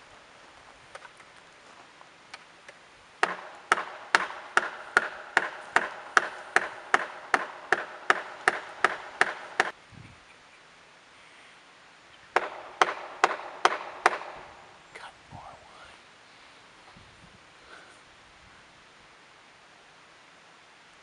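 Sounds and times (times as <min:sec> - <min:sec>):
chopping blows on wood: 0:03.2 - 0:09.8, 0:12.4 - 0:14.5.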